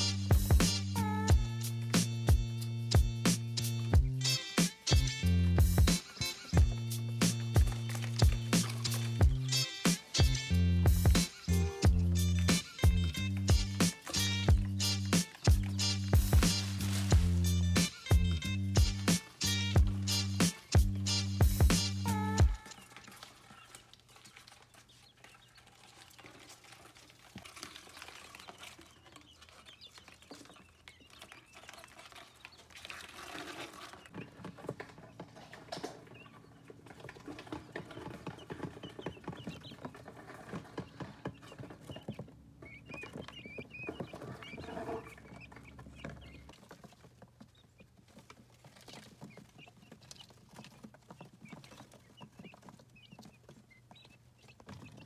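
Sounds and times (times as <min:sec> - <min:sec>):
chicks scratching and pecking: 0:00.0 - 0:55.0
handling rustles: 0:15.1 - 0:18.2
faint high chick peeps: 0:35.8 - 0:55.0.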